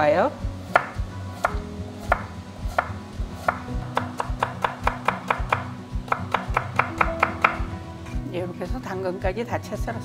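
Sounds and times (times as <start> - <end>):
knife chopping on wooden board: 0.7 - 7.7.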